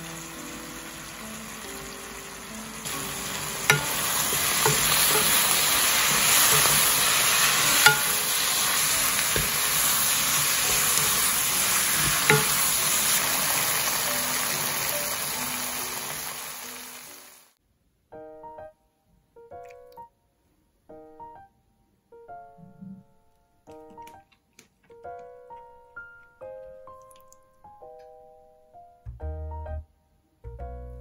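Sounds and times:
food sizzling in frying pan: 0.0s - 17.6s.

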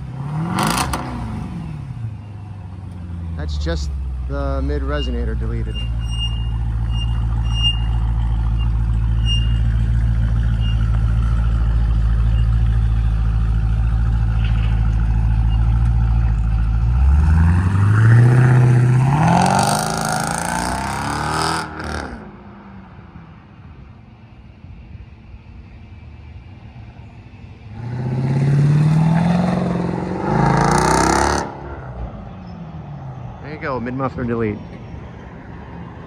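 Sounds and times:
engine revving and driving off: 0.0s - 23.6s, 27.1s - 36.0s
car engine idling: 1.8s - 17.5s.

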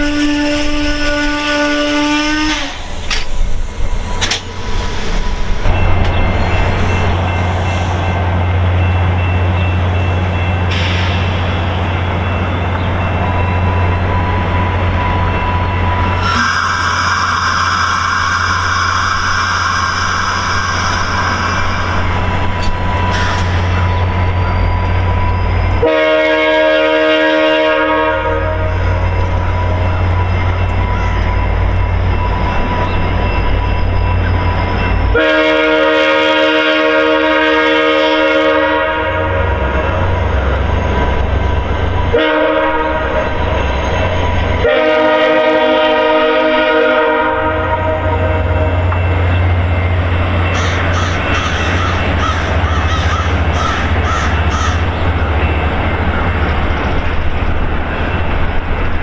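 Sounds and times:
locomotive air horn blasts: 0.0s - 2.9s, 16.2s - 22.1s, 25.8s - 29.0s, 35.1s - 39.8s, 42.1s - 43.3s, 44.6s - 48.9s
train coaches rolling on rails: 0.0s - 59.0s.

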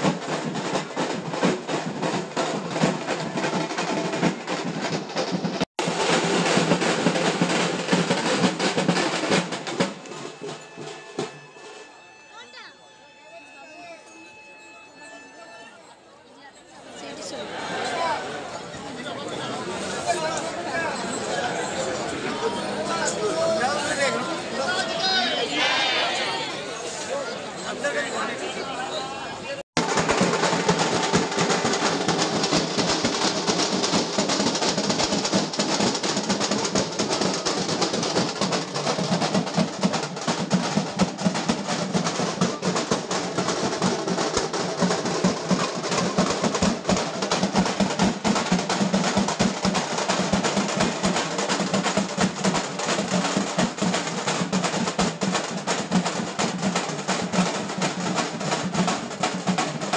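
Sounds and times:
fast dense drumming: 0.0s - 11.4s, 29.8s - 59.9s.

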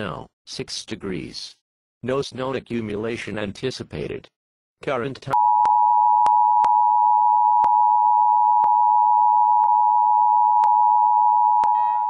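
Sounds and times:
electronic alert tone: 5.4s - 12.0s.

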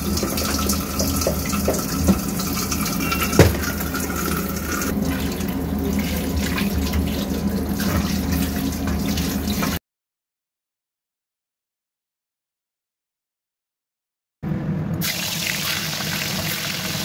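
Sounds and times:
fish rinsed by hand: 0.0s - 9.8s
tap water running into colander: 0.0s - 9.8s, 15.0s - 17.0s.

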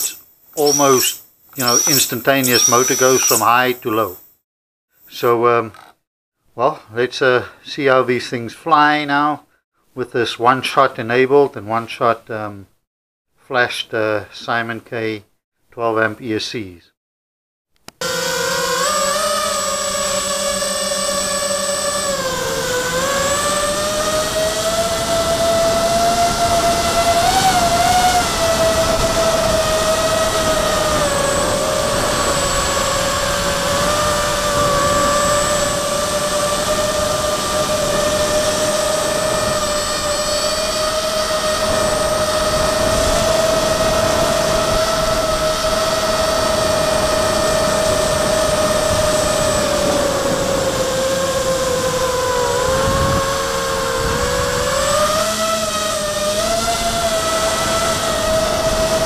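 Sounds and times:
quadcopter motors whining: 0.0s - 4.3s, 17.9s - 59.0s.

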